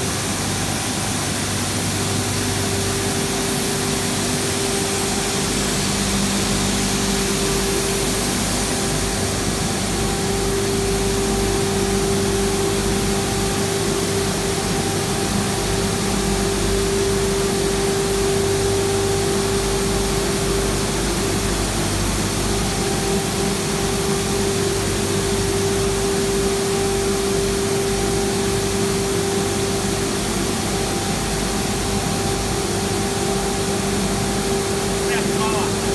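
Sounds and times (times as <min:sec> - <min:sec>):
machine hum with constant tone: 0:00.0 - 0:35.9
even hiss: 0:29.8 - 0:35.9.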